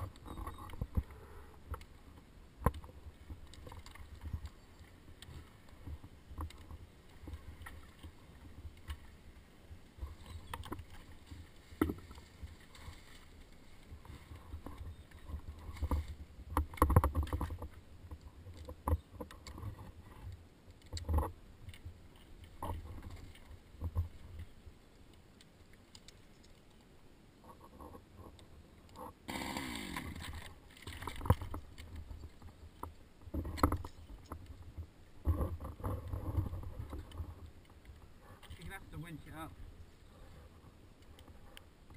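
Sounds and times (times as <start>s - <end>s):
wind rumbling on microphone: 30.1s - 41.9s.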